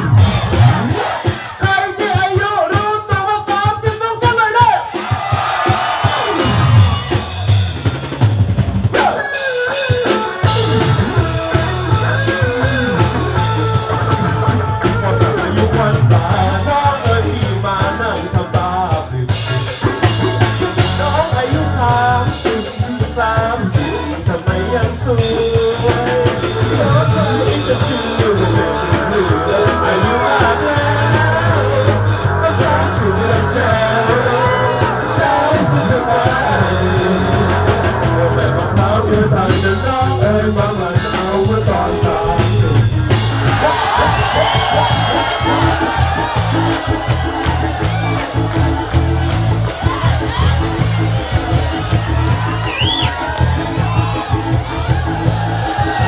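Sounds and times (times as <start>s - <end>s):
rock band music: 0.0s - 56.0s
person singing: 9.0s - 19.6s, 20.5s - 45.8s.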